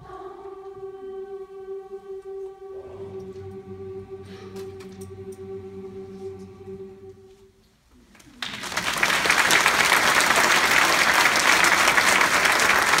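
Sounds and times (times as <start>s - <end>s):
choir holding chord: 0.0s - 7.6s
audience applauding: 8.2s - 13.0s.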